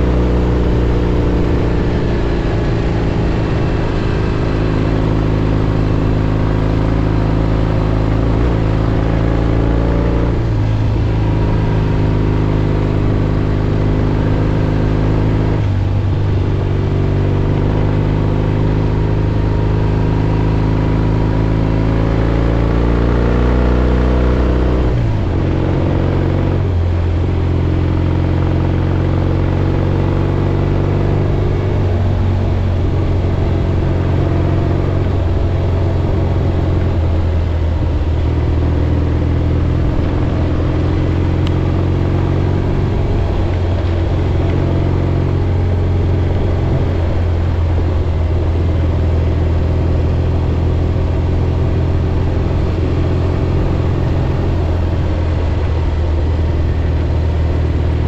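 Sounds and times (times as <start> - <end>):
motorcycle engine: 0.0 - 58.0
wind and road noise: 0.0 - 58.0.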